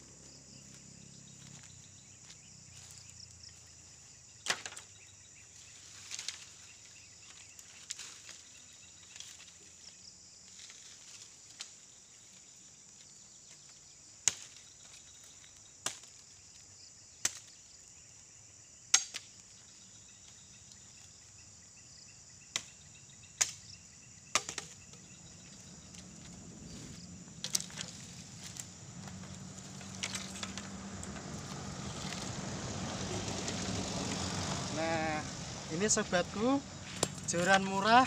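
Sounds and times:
engine in background: 0:00.0 - 0:06.7, 0:24.9 - 0:38.0
machete chopping bamboo: 0:14.2 - 0:14.6, 0:15.8 - 0:16.2, 0:17.2 - 0:17.6, 0:18.9 - 0:19.4, 0:22.5 - 0:22.8, 0:23.4 - 0:23.6, 0:24.3 - 0:25.0, 0:36.9 - 0:37.8
bamboo poles knocking: 0:24.3 - 0:25.0, 0:36.9 - 0:38.0.

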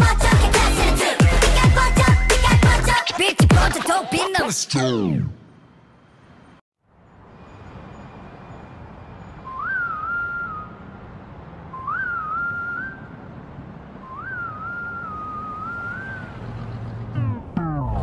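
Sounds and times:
whistled melody: 0:09.2 - 0:10.9, 0:11.7 - 0:13.1, 0:14.0 - 0:16.3.

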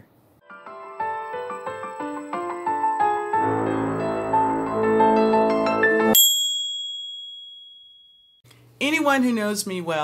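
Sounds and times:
soft keyboard music: 0:00.4 - 0:06.2
high bell-like ding: 0:06.1 - 0:08.4.

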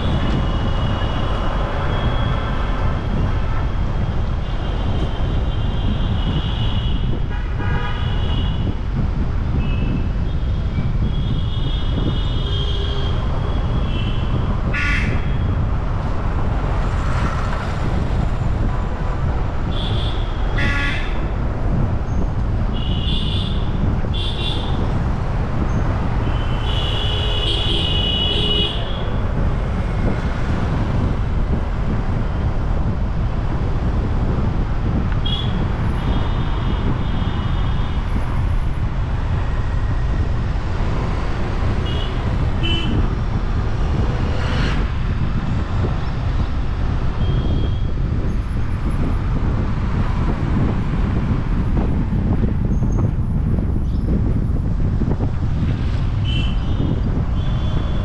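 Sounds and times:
car engine and road rumble: 0:00.0 - 0:58.0
vehicle horns tooting: 0:04.5 - 0:08.7, 0:11.1 - 0:15.5, 0:19.7 - 0:21.3, 0:26.2 - 0:29.2, 0:35.2 - 0:38.0, 0:41.8 - 0:43.1, 0:47.1 - 0:47.9, 0:56.2 - 0:58.0.

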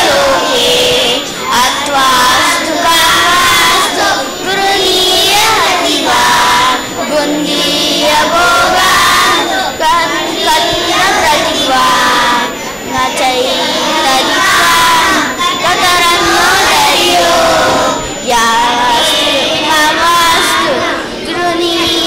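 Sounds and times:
children chanting in unison: 0:00.0 - 0:22.0.

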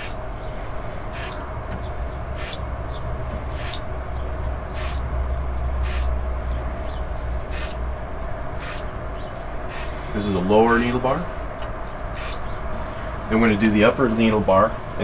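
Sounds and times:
steady low hum: 0:00.0 - 0:15.0
aerosol can hissing sprays: 0:01.1 - 0:01.4, 0:02.4 - 0:02.6, 0:03.5 - 0:03.8, 0:04.8 - 0:05.0, 0:05.8 - 0:06.1, 0:07.5 - 0:07.8, 0:08.6 - 0:08.8, 0:09.7 - 0:10.0, 0:12.2 - 0:12.4.

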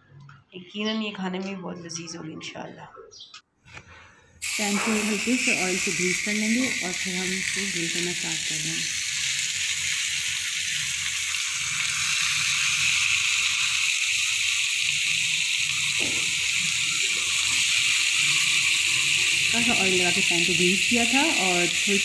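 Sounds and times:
fish sizzling on grill pan: 0:04.4 - 0:22.0.

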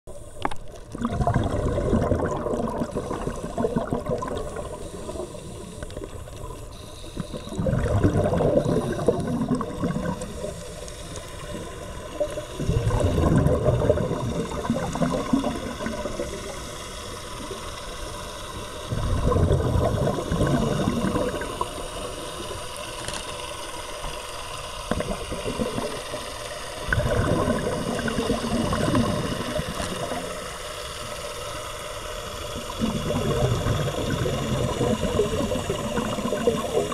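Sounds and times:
air bubbling underwater: 0:00.5 - 0:05.3, 0:07.2 - 0:10.6, 0:11.5 - 0:16.5, 0:18.9 - 0:21.6, 0:24.9 - 0:26.2, 0:26.8 - 0:30.4, 0:32.7 - 0:36.9
steady hiss: 0:02.6 - 0:13.4, 0:14.0 - 0:19.0, 0:20.0 - 0:27.0, 0:27.6 - 0:36.9.

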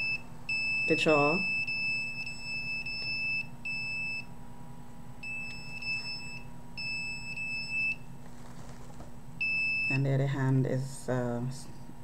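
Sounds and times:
detector alarm beeping: 0:00.0 - 0:04.3, 0:05.2 - 0:08.1, 0:09.4 - 0:10.1.

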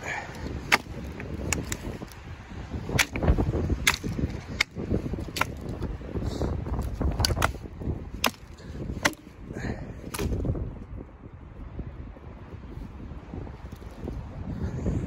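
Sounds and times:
dry twigs snapping: 0:00.0 - 0:06.0, 0:06.6 - 0:09.4, 0:10.0 - 0:10.6.

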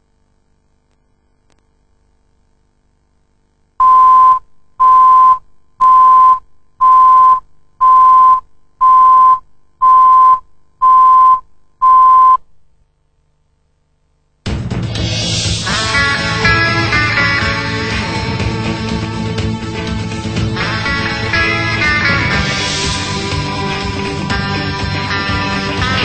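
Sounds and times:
high-pitched countdown beeps: 0:03.8 - 0:12.4
music: 0:14.4 - 0:26.0.

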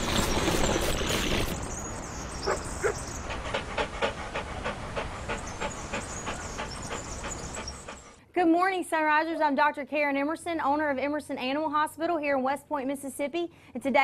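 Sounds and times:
dog panting: 0:02.4 - 0:08.2.

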